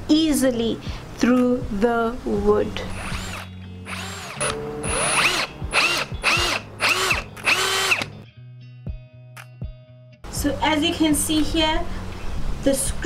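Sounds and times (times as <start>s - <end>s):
cordless drill whining into wood: 2.9s - 8.1s.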